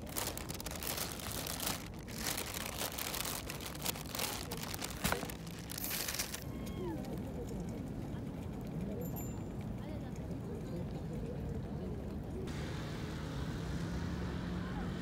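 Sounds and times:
plastic bag and packaging rustling: 0.0s - 6.4s.

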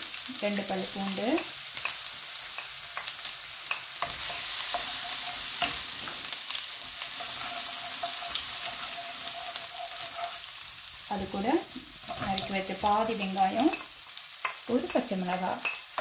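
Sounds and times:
oil sizzling in a wok: 0.0s - 16.0s
wooden spoon stirring: 3.7s - 6.2s, 6.8s - 14.6s.

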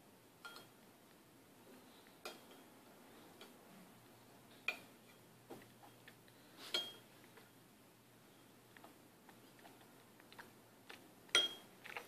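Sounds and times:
metal spoon clinking on ceramic bowl: 11.3s - 11.7s.

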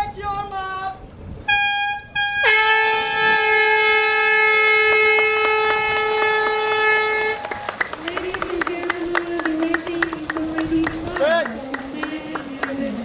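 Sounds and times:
starting horn long blast: 1.5s - 7.7s
faint splashing: 3.0s - 13.0s.

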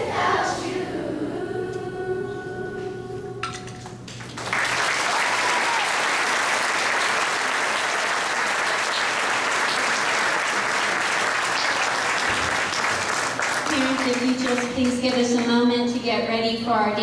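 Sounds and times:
audience applauding: 4.1s - 15.5s.

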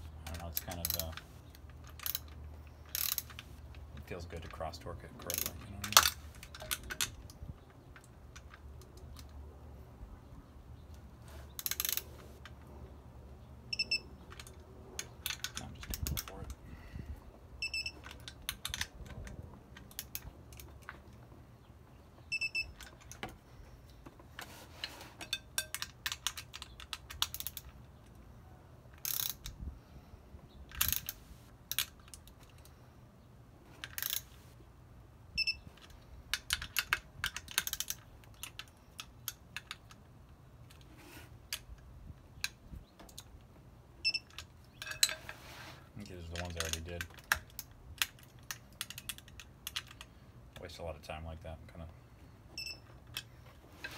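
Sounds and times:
torque wrench ratcheting: 2.9s - 3.4s.

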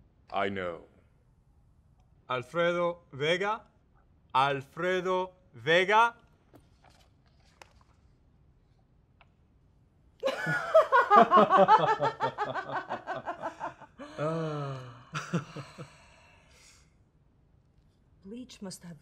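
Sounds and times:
woman laughing hard: 10.2s - 14.4s.

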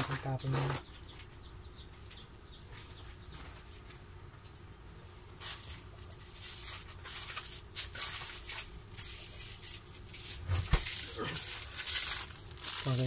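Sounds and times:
rustling plastic packaging: 5.3s - 13.0s.

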